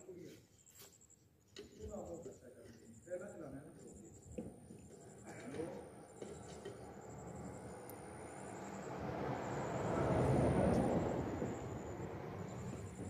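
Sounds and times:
vehicle passing by: 5.1s - 13.0s.

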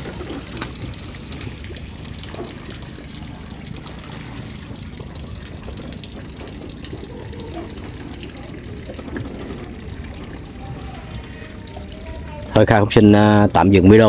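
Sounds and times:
steady low rumble: 0.0s - 14.0s
water trickling and splashing: 0.0s - 14.0s.

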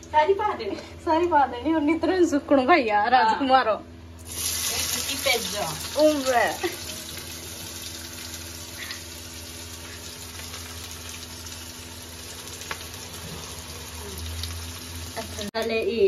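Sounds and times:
onions sizzling in oil: 4.2s - 15.8s.

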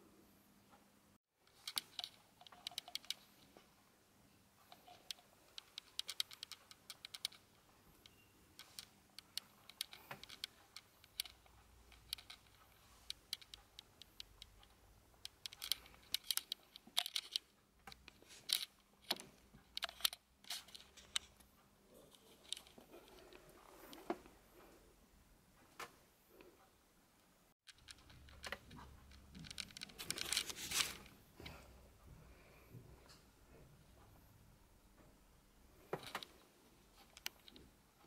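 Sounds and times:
wooden blocks clacking: 27.7s - 31.0s.

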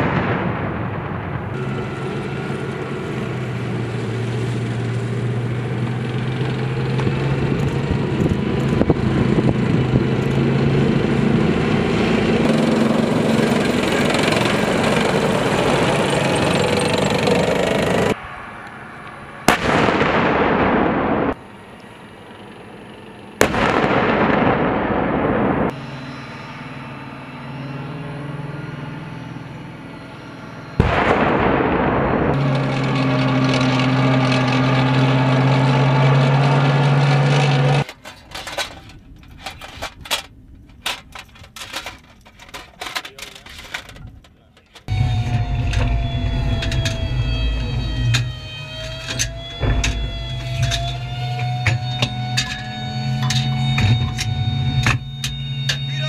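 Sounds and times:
tank engine and tracks: 0.0s - 56.0s
gun blasts ringing out: 19.4s - 21.4s, 23.4s - 25.8s, 30.8s - 32.6s.

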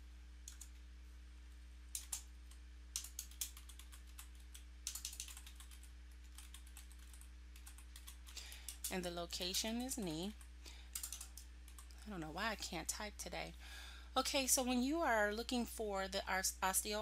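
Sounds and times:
faint electrical hum: 0.0s - 17.0s
typing on computer keyboard: 0.5s - 0.8s, 1.9s - 9.6s, 10.3s - 12.0s.

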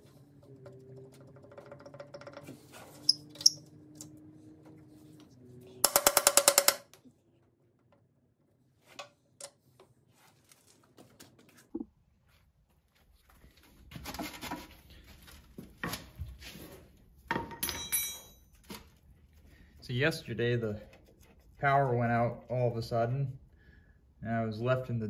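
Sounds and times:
impact wrench: 5.8s - 6.8s.

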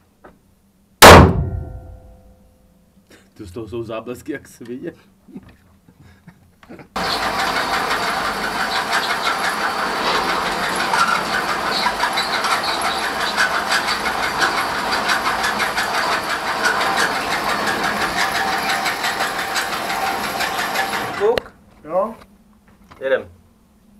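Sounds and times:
electric motor hum: 7.0s - 21.4s
trolley rattling on track: 7.0s - 21.4s.

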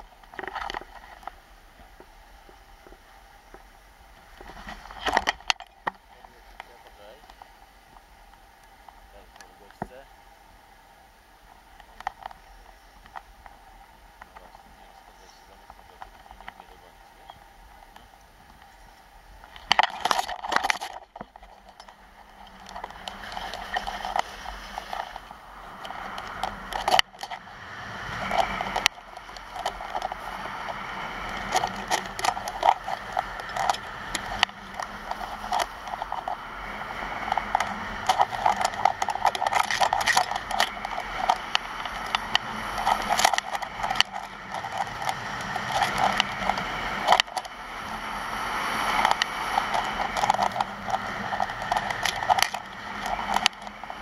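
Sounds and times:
skis scraping over snow: 22.3s - 26.7s, 27.6s - 54.0s.

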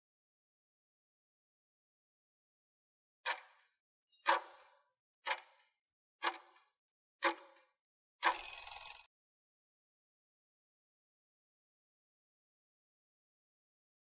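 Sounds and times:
short alarm ring: 8.2s - 9.1s
stopwatch ticking: 8.2s - 9.1s.

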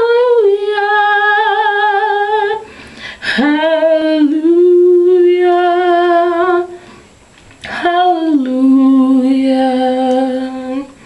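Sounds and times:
woman singing unaccompanied: 0.0s - 6.8s, 7.6s - 11.0s
singer breathing in: 2.6s - 3.3s.

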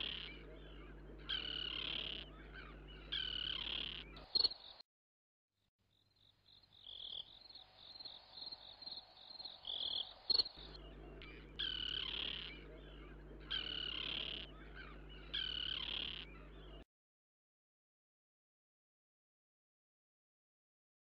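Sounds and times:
steady low hum: 0.0s - 4.2s, 7.6s - 16.8s
long animal calls: 0.0s - 4.3s, 9.7s - 16.8s
rapid high chirping: 9.7s - 16.8s.

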